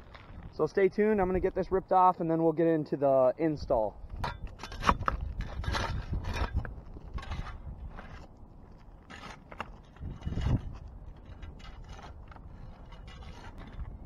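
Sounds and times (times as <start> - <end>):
shovel scraping on a roof: 4.1 - 14.0.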